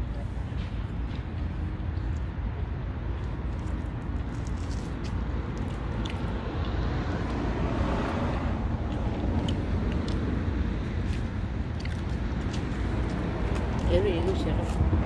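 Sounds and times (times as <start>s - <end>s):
wind rumble on microphone: 0.0s - 15.0s
car passing: 2.9s - 15.0s.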